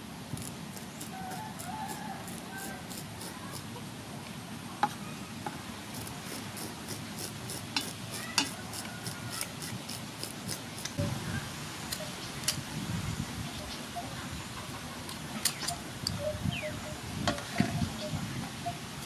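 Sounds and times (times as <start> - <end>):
scissor blade scraping fish scales: 0.3 - 3.7, 5.9 - 11.0.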